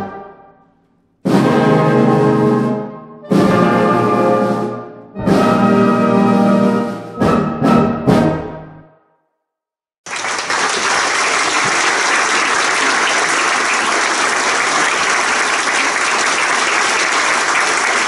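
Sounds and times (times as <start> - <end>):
audience applauding: 10.0 - 18.0.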